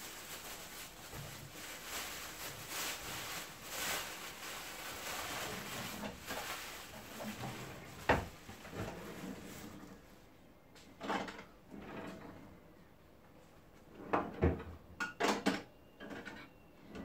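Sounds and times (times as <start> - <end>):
plastic bags rustling: 0.0 - 10.1.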